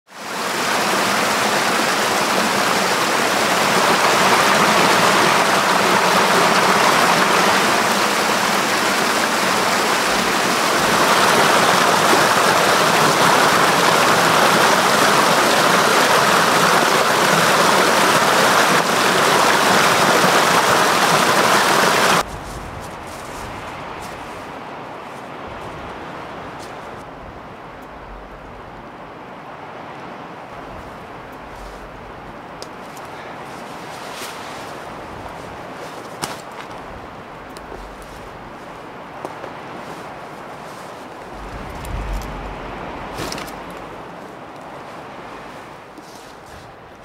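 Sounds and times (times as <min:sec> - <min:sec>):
wind rushing through pine trees: 0:00.1 - 0:47.0.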